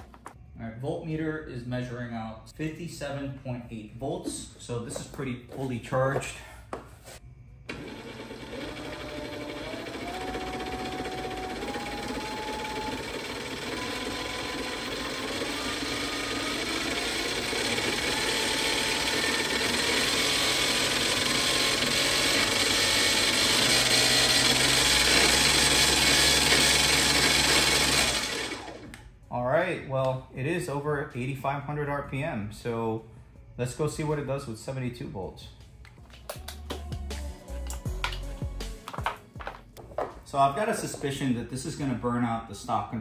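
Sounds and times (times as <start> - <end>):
electric outboard motor whine: 7.7 - 28.9.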